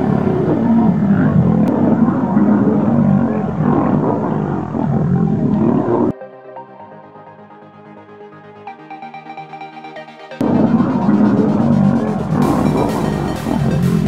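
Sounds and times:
lions growling and roaring: 0:00.0 - 0:06.1, 0:10.4 - 0:13.8.

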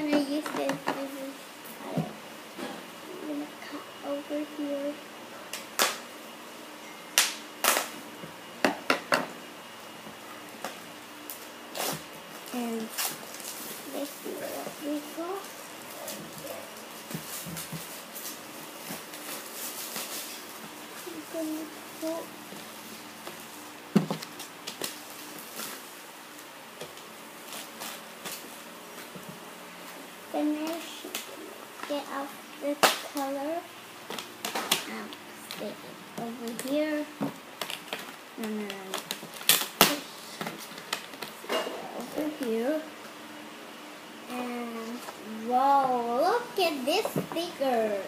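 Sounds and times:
packaging rustling and crinkling: 0:12.4 - 0:26.0, 0:26.9 - 0:29.2, 0:37.6 - 0:41.4
scissors cutting plastic packaging: 0:37.6 - 0:41.3.

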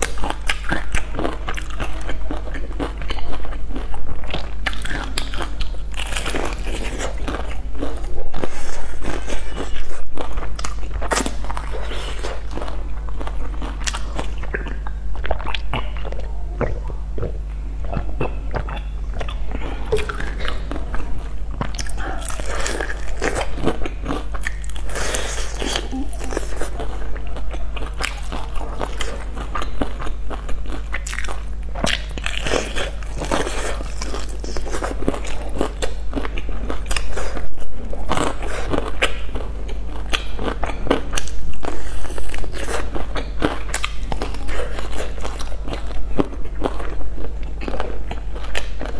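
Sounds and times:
low hum: 0:00.0 - 0:36.6
wet chewing: 0:00.0 - 0:48.9.

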